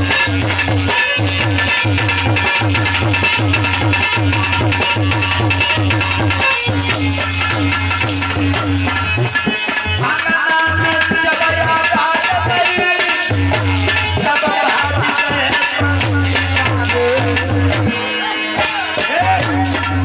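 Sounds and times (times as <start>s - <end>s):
hand drum and rattle percussion: 0.0s - 18.0s, 18.6s - 20.0s
harmonium melody: 0.0s - 20.0s.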